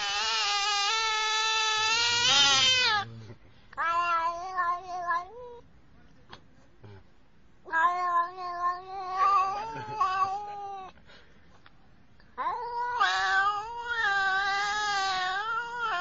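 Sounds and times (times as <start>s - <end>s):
cat meowing: 0.0s - 3.1s, 3.8s - 5.6s, 7.6s - 11.0s, 12.4s - 16.0s.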